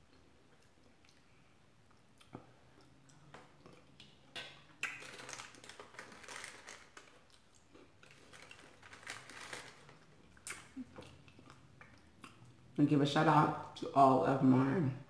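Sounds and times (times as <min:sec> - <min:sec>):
chewing with wet mouth clicks: 0:00.0 - 0:05.6, 0:10.2 - 0:12.6
plastic sleeve rustling: 0:04.9 - 0:07.3, 0:08.0 - 0:10.7.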